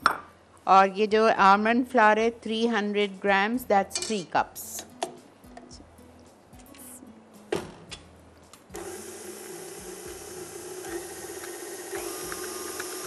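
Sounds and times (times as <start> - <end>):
stand mixer motor running: 8.8 - 13.0.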